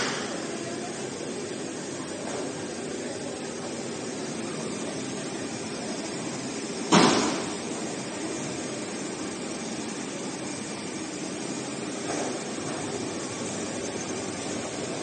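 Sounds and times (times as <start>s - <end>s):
sharp bang: 6.9s - 7.5s.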